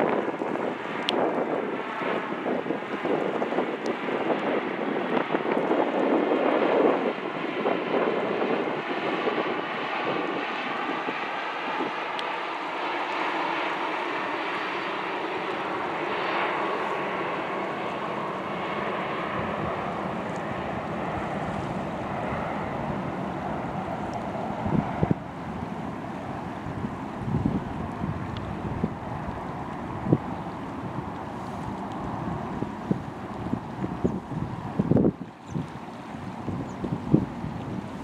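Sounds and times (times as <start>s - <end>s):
jet airliner flying past: 0.0s - 38.0s.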